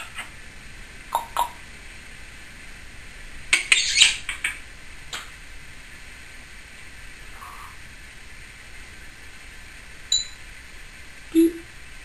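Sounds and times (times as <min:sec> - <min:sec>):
parrot chirping: 0:01.1 - 0:01.6, 0:03.5 - 0:04.6.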